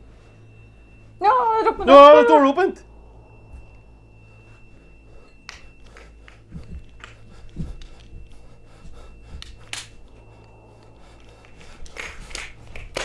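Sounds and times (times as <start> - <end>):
quiet footsteps: 3.2 - 13.0
soft low thumps: 5.7 - 13.0.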